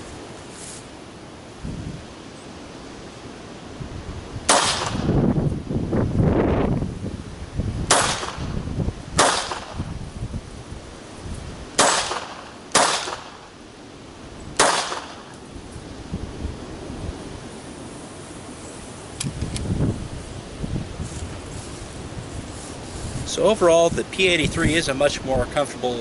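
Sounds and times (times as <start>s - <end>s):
wind buffeting microphone: 1.6s - 2.2s, 3.7s - 12.4s, 14.2s - 26.0s
pistol shots: 4.5s - 5.1s, 7.9s - 8.5s, 9.2s - 9.8s, 11.8s - 13.5s, 14.6s - 15.3s.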